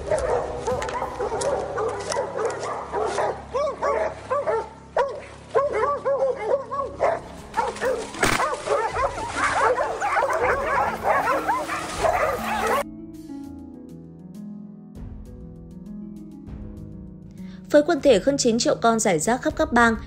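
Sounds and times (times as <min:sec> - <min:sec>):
pack of dogs barking and yipping: 0:00.0 - 0:12.8.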